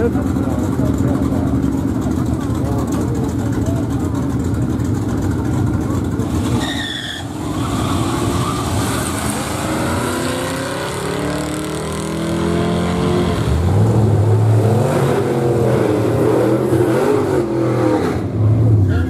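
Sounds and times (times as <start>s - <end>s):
cars accelerating hard: 0.0s - 18.9s.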